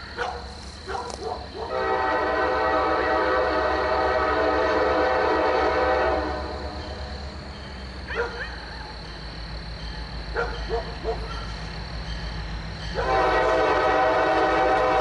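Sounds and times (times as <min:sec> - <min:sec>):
low rumble of train: 0:00.0 - 0:15.0
locomotive air horn: 0:01.7 - 0:07.0, 0:12.9 - 0:15.0.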